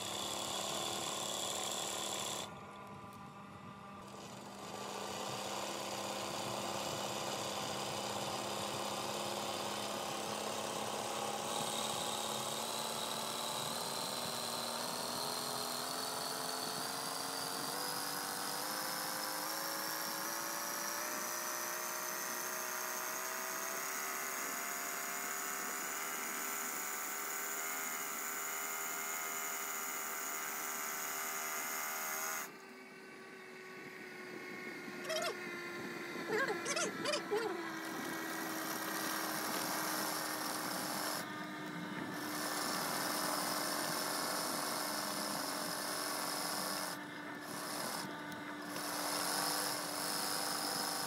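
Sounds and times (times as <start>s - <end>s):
sewing machine motor whine: 0.0s - 51.0s.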